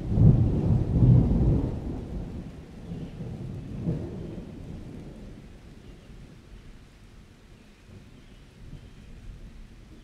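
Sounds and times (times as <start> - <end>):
thunder rumbling: 0.0 - 5.4.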